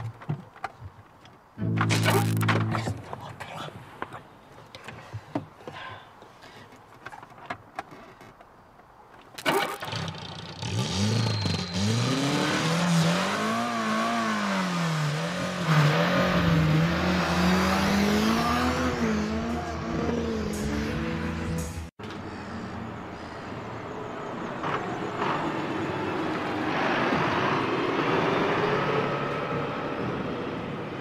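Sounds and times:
engine starting and revving: 9.4 - 21.8.

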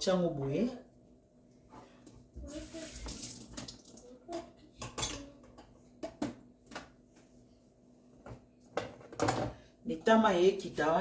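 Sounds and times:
dishes and utensils clinking: 4.3 - 6.4.

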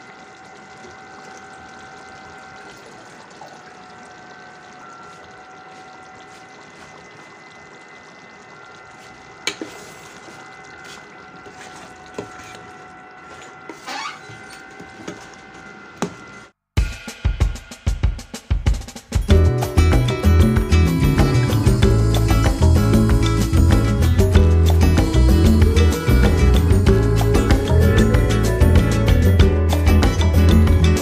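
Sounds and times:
sauce simmering and bubbling: 0.0 - 15.9
steady high hum: 0.0 - 16.6, 19.3 - 31.0.

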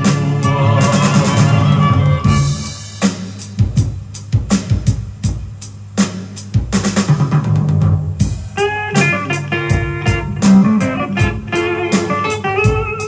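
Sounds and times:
bass line: 0.0 - 2.8, 7.2 - 12.9
drum kit beat: 0.0 - 13.0
guitar notes: 8.6 - 13.0.

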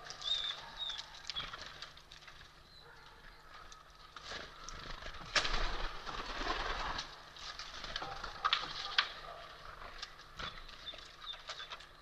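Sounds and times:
dove wings flapping: 4.2 - 9.2.

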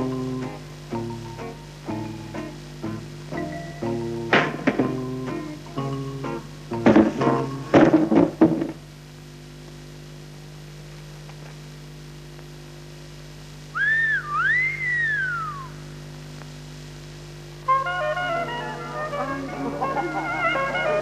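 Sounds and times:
steady low hum: 0.0 - 21.0
loud knocks: 6.8 - 8.8
two-part whistle: 13.8 - 15.9.

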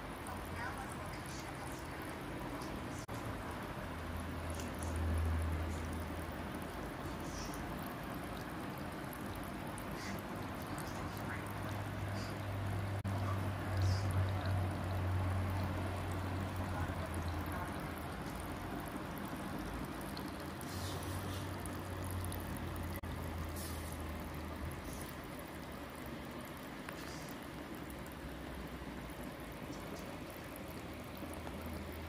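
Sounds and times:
fountain water trickling on stone: 0.0 - 32.0
steady low hum: 0.0 - 32.0.

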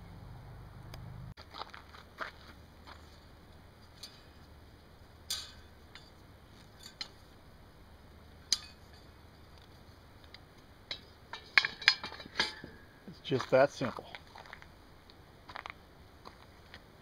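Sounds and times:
metal clinks against iron: 5.3 - 7.2, 8.5 - 9.1, 10.9 - 12.9.

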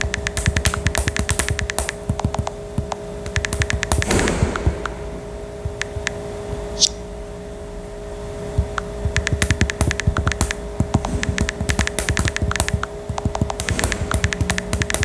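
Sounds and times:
fingernails tapping on touchscreen: 0.0 - 5.0, 5.6 - 6.2, 8.6 - 15.0
steady low hum: 0.0 - 15.0.

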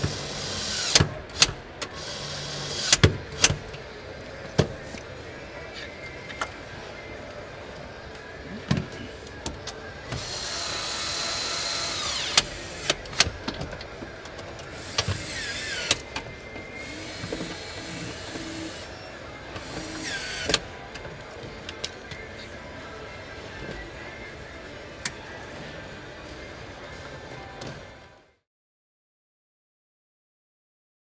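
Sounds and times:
power tool whining: 10.1 - 13.4, 14.7 - 20.8.

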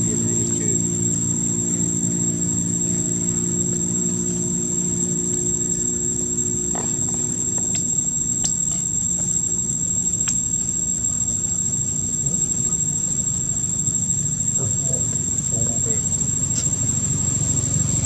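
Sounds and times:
high-pitched insect drone: 0.0 - 18.0.

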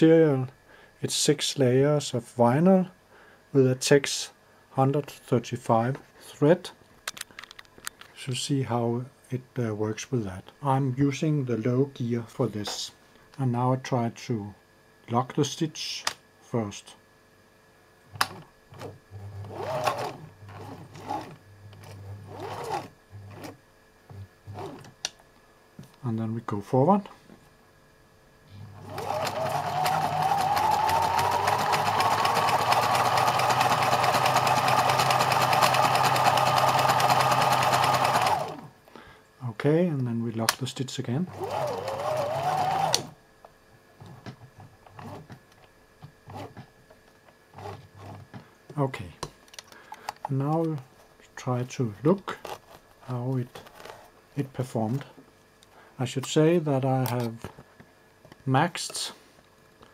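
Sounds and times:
sewing machine motor whining: 18.7 - 23.5, 28.8 - 38.7, 41.3 - 43.1.

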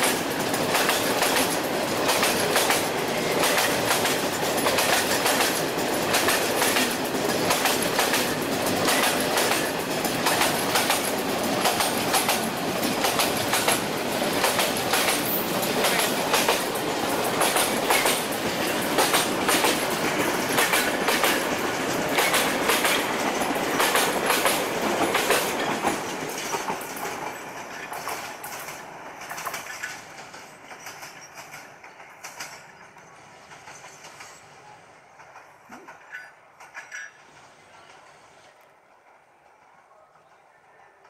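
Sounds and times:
freight train wheels clacking: 0.0 - 41.0.

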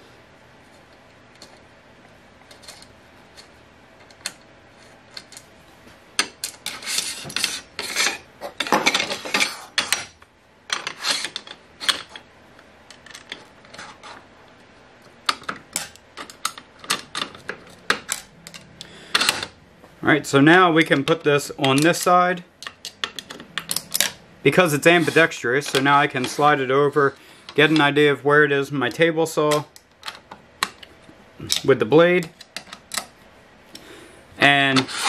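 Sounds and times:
metal scraping and clattering: 6.2 - 10.1
metal parts clicking and knocking: 15.2 - 19.5, 21.6 - 24.2.

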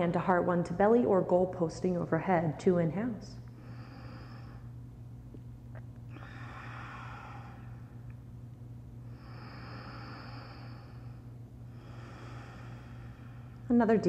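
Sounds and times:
steady low hum: 0.0 - 14.0
woman breathing deeply: 3.5 - 4.8, 6.1 - 8.1, 9.0 - 13.7.

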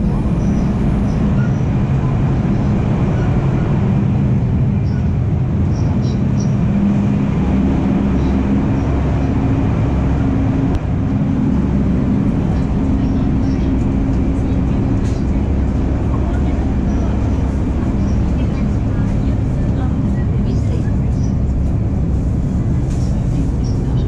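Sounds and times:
train running with low hum: 0.0 - 24.0.

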